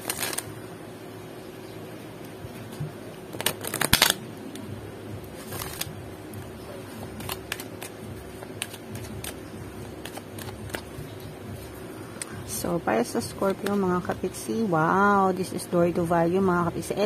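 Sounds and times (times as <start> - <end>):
cards riffle shuffling: 0.0 - 0.5, 3.3 - 4.2, 5.4 - 12.4
cards clicking and tapping: 7.1 - 11.1, 13.4 - 13.8.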